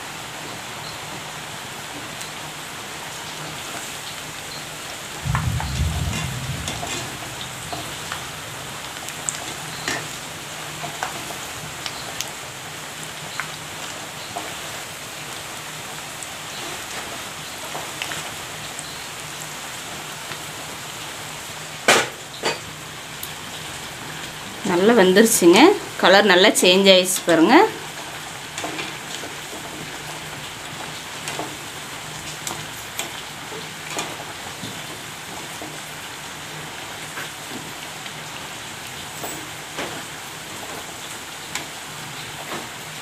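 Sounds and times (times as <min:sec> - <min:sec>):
deep frying sizzle and crackles: 0:00.0 - 0:43.0
low thump: 0:05.2 - 0:08.4.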